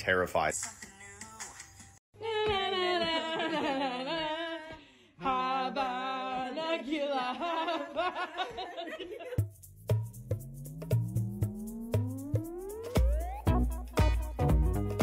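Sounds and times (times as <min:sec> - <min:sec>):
electronic music: 0:09.6 - 0:15.0.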